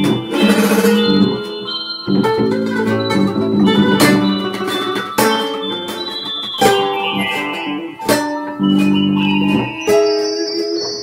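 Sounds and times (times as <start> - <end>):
classical guitar chords: 0.0 - 11.0.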